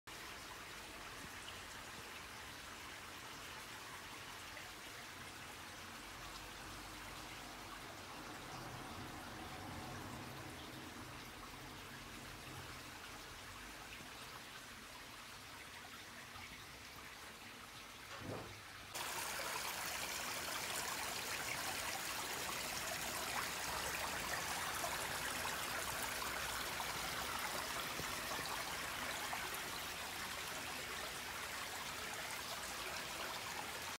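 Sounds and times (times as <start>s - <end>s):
stream babbling over stones: 18.9s - 34.0s.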